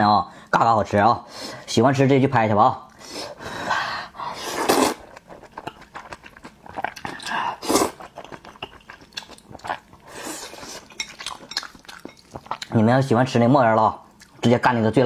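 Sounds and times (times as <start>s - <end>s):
person slurping noodles: 4.3s - 5.2s, 7.2s - 8.1s.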